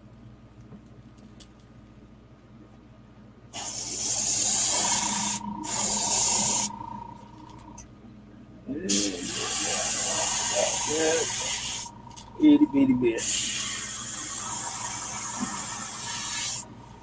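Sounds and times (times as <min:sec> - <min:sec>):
airbrush spraying hiss: 0:03.6 - 0:06.8, 0:08.9 - 0:12.0, 0:13.2 - 0:16.7.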